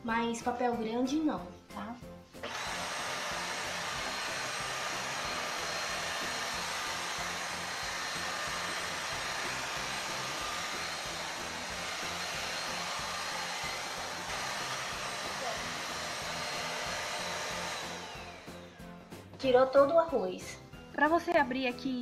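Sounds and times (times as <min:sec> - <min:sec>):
vacuum cleaner running: 0:02.4 - 0:19.0.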